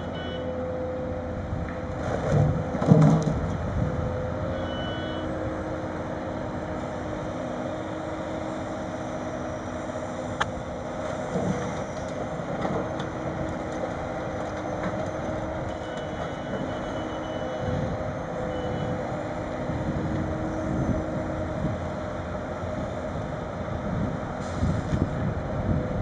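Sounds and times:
material handler engine running: 0.0 - 26.0
knocks of timber load set down: 2.2 - 3.4.

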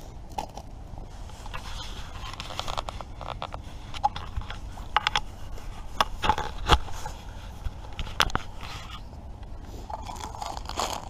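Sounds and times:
plastic packet crinkling: 9.9 - 11.0.

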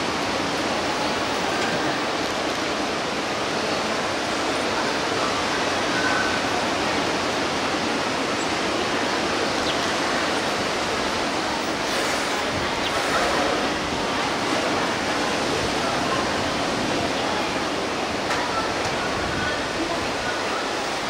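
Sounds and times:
rushing water: 0.0 - 21.0.

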